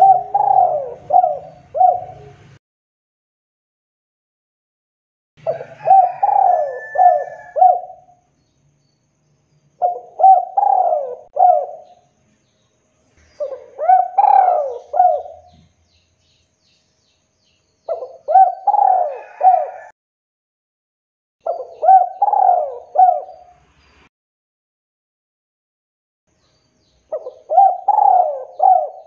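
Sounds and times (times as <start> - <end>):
dove cooing: 0.0 - 2.6, 5.4 - 8.2, 9.8 - 12.0, 13.3 - 15.7, 17.9 - 19.9, 21.4 - 23.5, 27.1 - 29.0.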